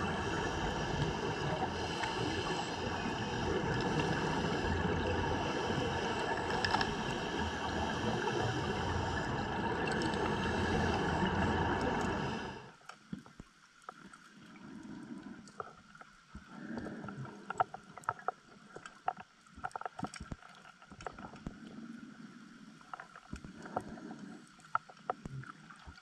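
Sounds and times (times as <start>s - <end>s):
diver breathing through regulator: 0.0s - 12.7s
exhaled bubbles underwater: 0.0s - 12.7s.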